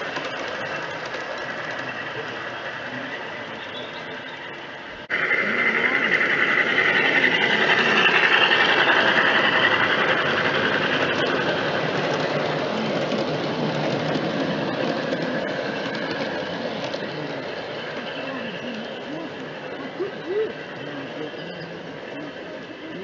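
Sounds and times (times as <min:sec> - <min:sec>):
model train motor whirring: 0:00.0 - 0:23.0
train wheels rattling over track: 0:00.0 - 0:23.0.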